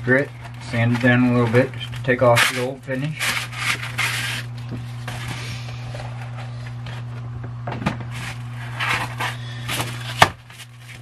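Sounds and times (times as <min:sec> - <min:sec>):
steady low hum: 0:00.0 - 0:11.0
sandpaper rustling: 0:02.3 - 0:04.5.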